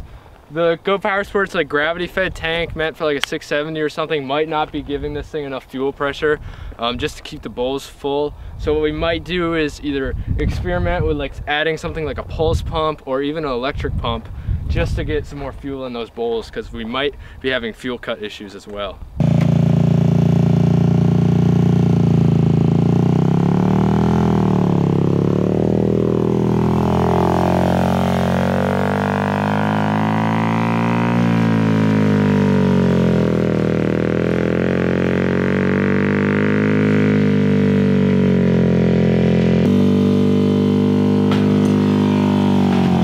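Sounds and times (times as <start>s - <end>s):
kart engine revving: 19.2s - 43.0s.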